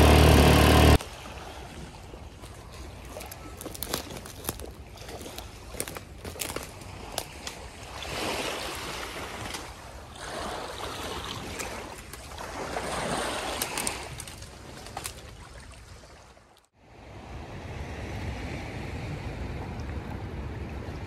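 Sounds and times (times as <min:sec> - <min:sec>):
water rushing and splashing: 0:00.0 - 0:16.6.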